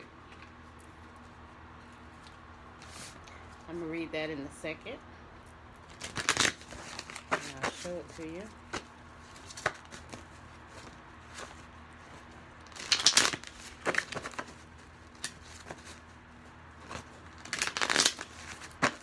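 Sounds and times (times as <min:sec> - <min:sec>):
cards riffle shuffled: 0:12.7 - 0:16.0, 0:16.8 - 0:19.0.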